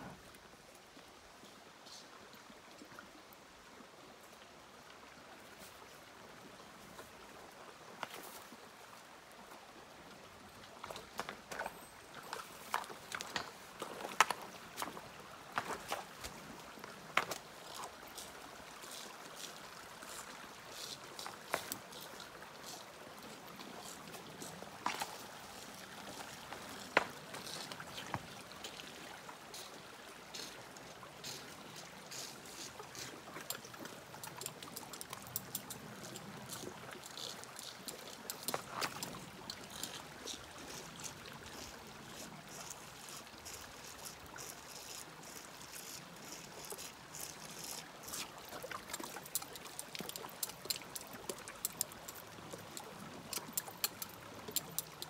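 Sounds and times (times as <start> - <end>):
creek running: 0.0 - 55.0.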